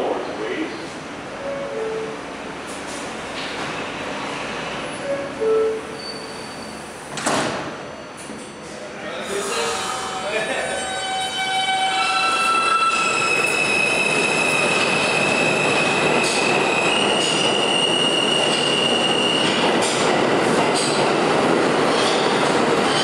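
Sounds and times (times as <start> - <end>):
train wheels rumbling on rail: 6.1 - 23.0.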